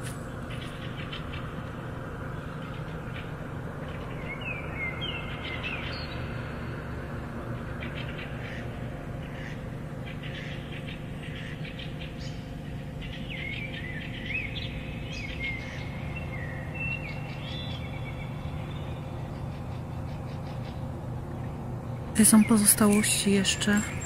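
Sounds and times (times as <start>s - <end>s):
steady low hum: 0.0s - 24.0s
small birds chirping: 7.8s - 24.0s.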